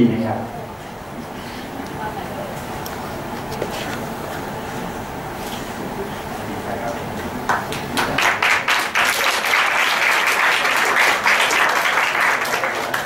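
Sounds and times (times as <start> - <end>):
audience applauding: 7.4 - 13.0.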